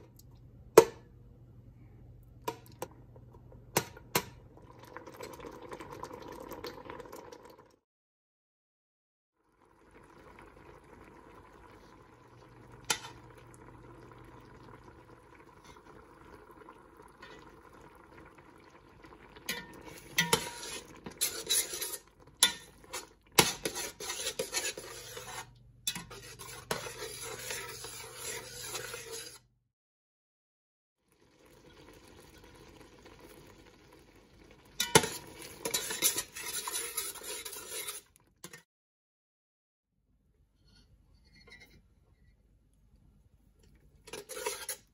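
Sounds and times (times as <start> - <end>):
metal spoon scraping a pot: 12.8 - 13.4, 19.5 - 29.5, 34.8 - 38.7, 40.6 - 42.2, 44.0 - 44.9.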